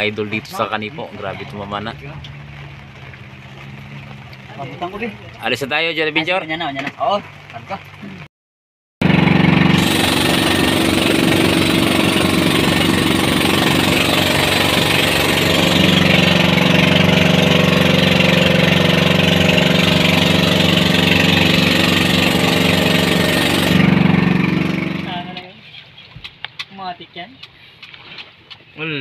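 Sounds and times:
boat engine droning: 0.0s - 5.7s, 9.0s - 25.6s
wind and water rushing: 0.0s - 8.3s, 9.0s - 26.6s.

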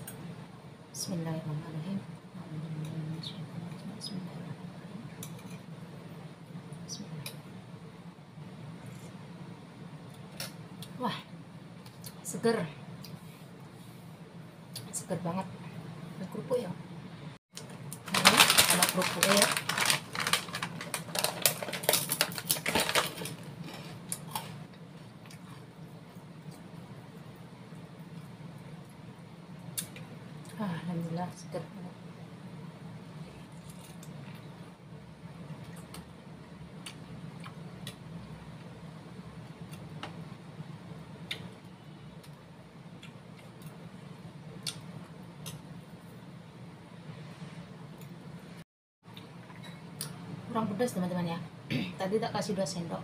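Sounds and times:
steady low hum: 0.0s - 53.0s
plastic bag crinkling: 17.6s - 24.1s
crisp crackers crackling: 17.6s - 24.6s.

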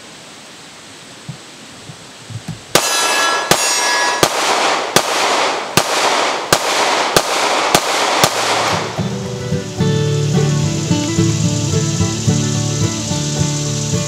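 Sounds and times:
pistol shots with echo: 2.7s - 9.0s.

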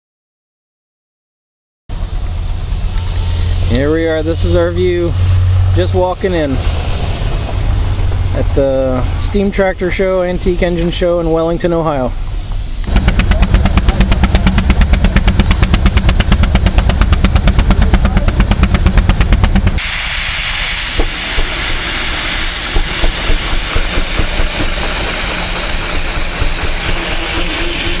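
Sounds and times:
steam engine exhaust beating: 1.9s - 28.0s
steam hissing: 2.0s - 28.0s.

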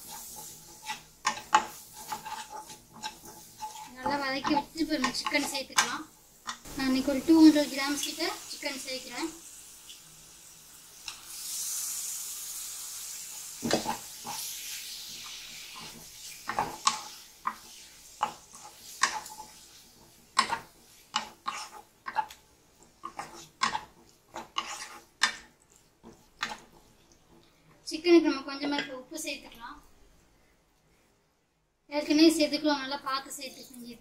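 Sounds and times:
spatula scraping a pan: 0.0s - 6.6s, 12.9s - 27.4s
chicken sizzling in a pan: 0.0s - 27.5s.

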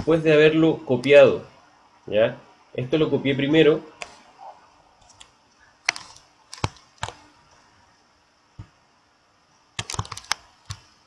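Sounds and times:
mouse and keyboard clicks: 5.0s - 7.2s, 9.8s - 10.9s.

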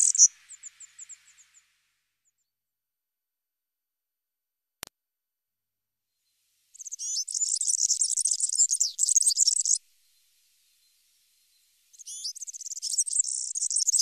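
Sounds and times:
bird singing jingling song: 0.0s - 1.6s, 6.8s - 14.0s.

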